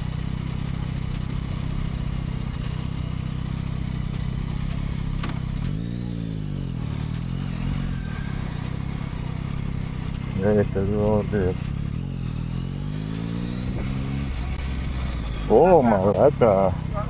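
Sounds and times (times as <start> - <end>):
rapid high ticking: 0.0 - 5.0
motorcycle engine idling and revving: 0.0 - 17.0.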